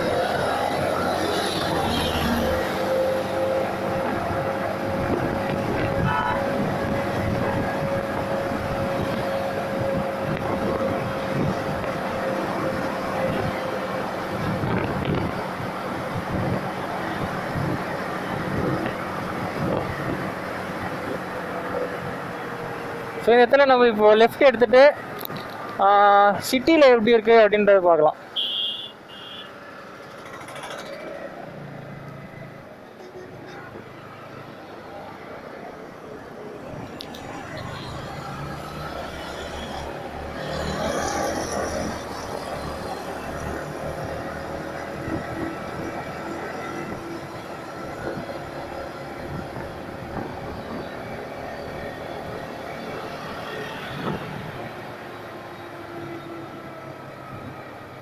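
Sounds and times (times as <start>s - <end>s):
wind and road noise: 0.0s - 58.0s
wind rush on microphone: 2.5s - 21.4s, 41.6s - 51.3s.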